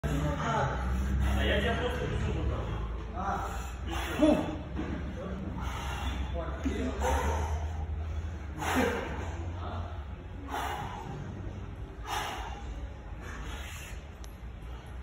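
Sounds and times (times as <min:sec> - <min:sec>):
steady low hum: 0:00.0 - 0:15.0
man breathing sharply: 0:05.5 - 0:06.4, 0:10.3 - 0:15.0.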